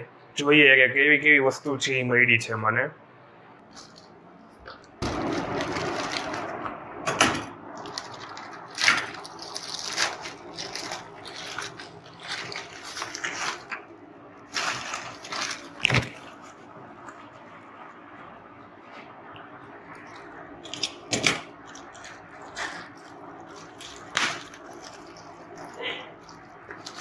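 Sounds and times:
plastic bag rustling and crinkling: 3.7s - 6.7s, 7.8s - 19.0s, 19.7s - 27.0s.

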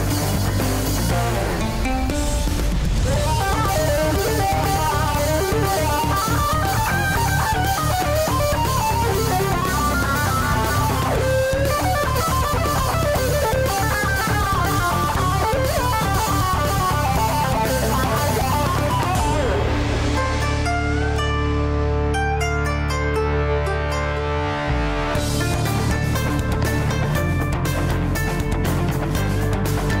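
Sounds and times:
steady drum beat: 0.0s - 20.8s
guitar melody: 0.0s - 30.0s.

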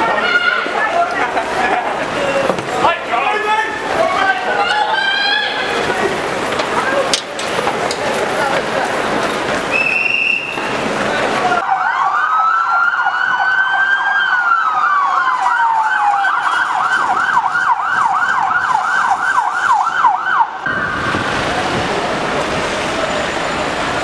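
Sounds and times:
street traffic noise: 0.0s - 24.0s
police siren wailing and yelping: 11.6s - 21.8s.

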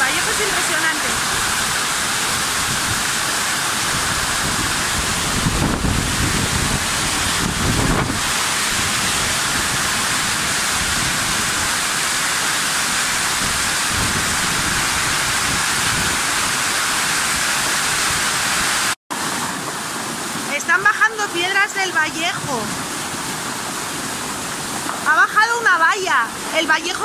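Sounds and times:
torrential rain: 0.0s - 27.0s
wind rumble on microphone: 1.0s - 11.9s, 13.0s - 16.7s.

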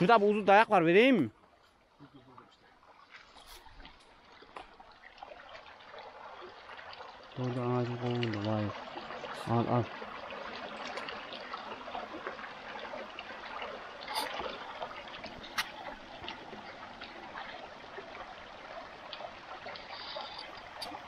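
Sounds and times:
creek water flowing: 0.0s - 21.0s.

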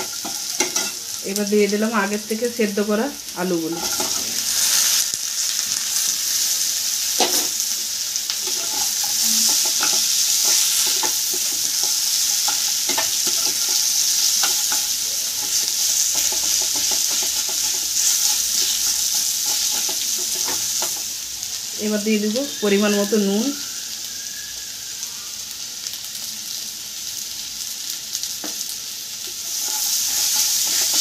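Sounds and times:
food sizzling in hot oil: 0.0s - 31.0s
wooden spatula scraping pan: 8.4s - 21.0s, 29.4s - 31.0s.

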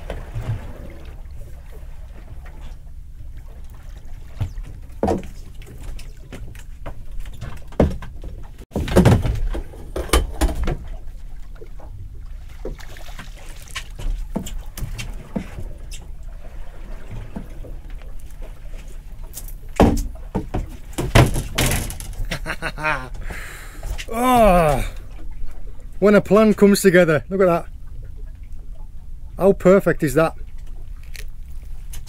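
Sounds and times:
low rumble of water on hull: 0.0s - 32.0s
water splashing and sloshing: 0.0s - 32.0s
knocks against boat hull: 19.8s - 22.0s.

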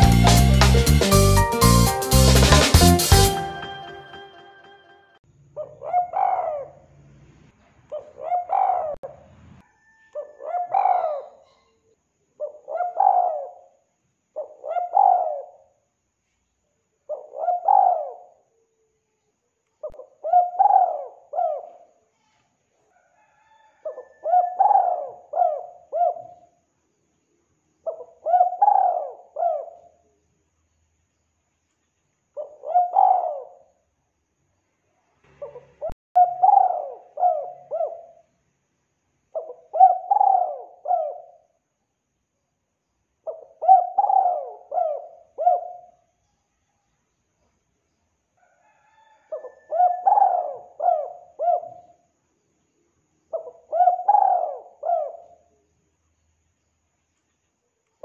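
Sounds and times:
dove cooing: 5.6s - 6.8s, 7.9s - 9.0s, 10.2s - 11.5s, 12.4s - 13.6s, 14.4s - 15.7s, 17.1s - 18.3s, 19.8s - 21.8s, 23.8s - 26.4s, 27.9s - 29.9s, 32.4s - 33.6s, 35.4s - 38.2s, 39.4s - 41.4s, 43.3s - 46.0s, 49.0s - 51.9s, 53.3s - 55.4s.

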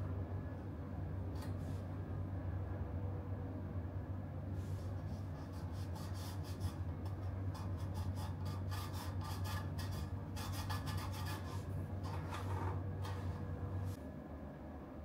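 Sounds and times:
fingertip scraping over rim: 4.6s - 14.0s.

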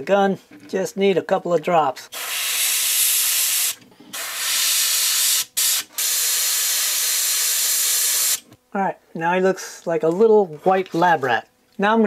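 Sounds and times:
airbrush spraying hiss: 2.1s - 8.4s.

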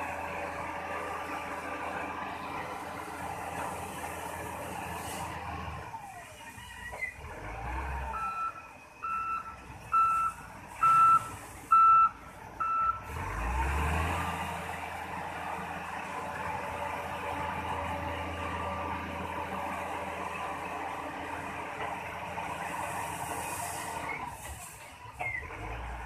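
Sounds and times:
diesel engine running: 0.0s - 26.0s
reversing alarm beeping: 8.1s - 13.1s.

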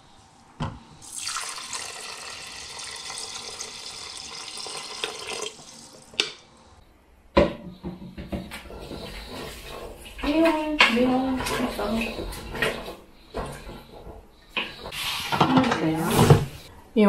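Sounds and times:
water pouring onto rice: 1.0s - 5.9s.

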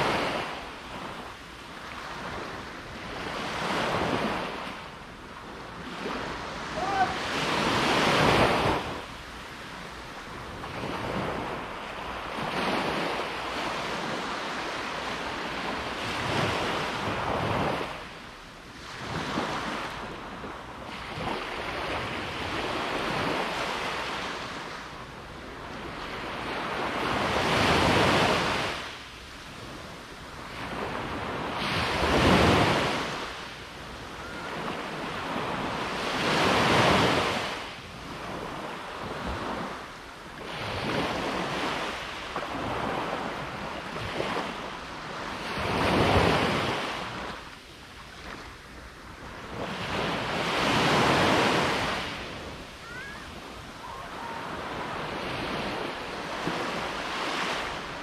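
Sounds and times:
ocean surf breaking on beach: 0.0s - 58.0s.

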